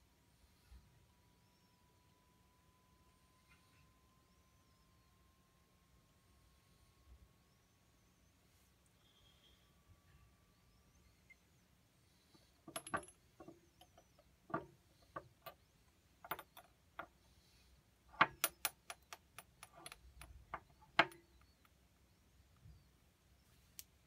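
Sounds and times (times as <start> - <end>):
plastic clicking against glass bottles: 18.2 - 21.2.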